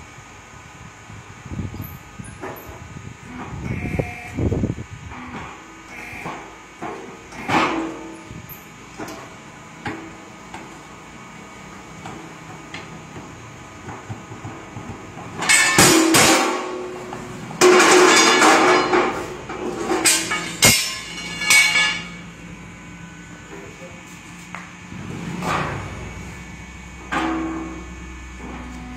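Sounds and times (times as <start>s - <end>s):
metallic clanking and scraping: 15.3s - 22.3s, 24.9s - 28.8s.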